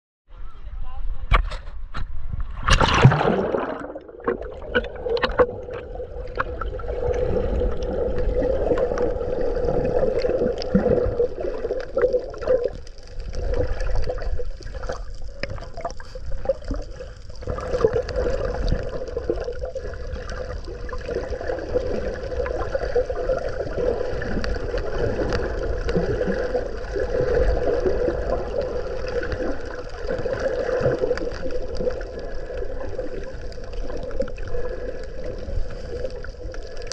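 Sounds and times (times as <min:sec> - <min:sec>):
splash into water: 0:02.5 - 0:05.8.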